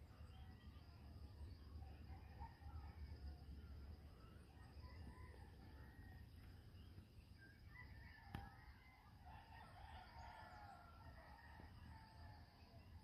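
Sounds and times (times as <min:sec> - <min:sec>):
faint insect chirr: 0:00.0 - 0:13.0
rooster crowing faintly: 0:07.6 - 0:12.8.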